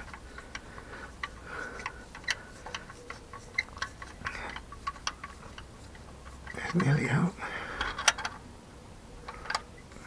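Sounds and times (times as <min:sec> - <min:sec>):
socket wrench clicking: 0:00.0 - 0:06.9, 0:07.8 - 0:08.4.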